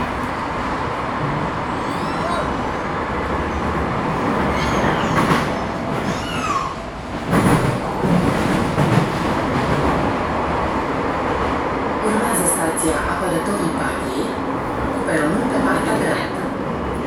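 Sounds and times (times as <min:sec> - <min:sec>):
train wheels rumbling on track: 0:00.0 - 0:17.0.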